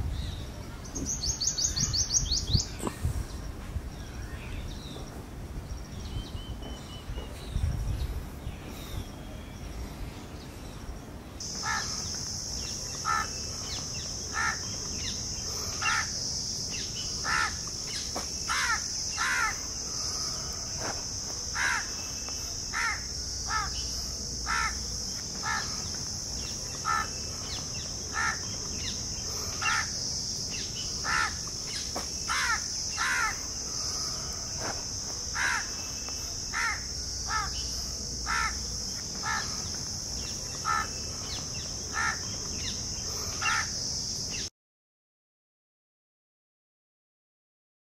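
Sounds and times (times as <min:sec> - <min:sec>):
insects droning: 0:00.0 - 0:44.5
bird calling: 0:11.4 - 0:43.8.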